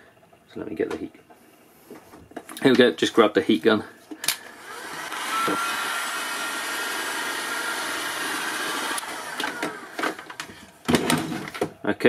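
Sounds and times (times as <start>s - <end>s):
heat gun fan blowing: 4.1s - 11.6s.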